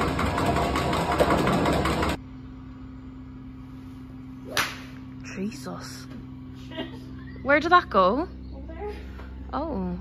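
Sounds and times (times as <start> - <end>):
ball dispenser machine running: 0.0 - 2.2
low steady hum: 2.2 - 10.0.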